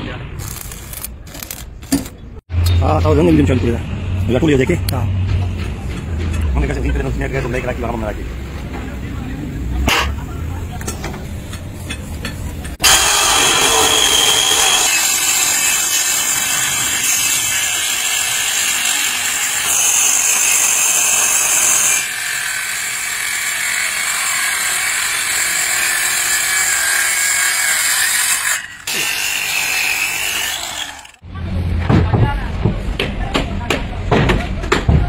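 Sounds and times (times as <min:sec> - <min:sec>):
circular saw cutting wood: 0:12.8 - 0:31.2.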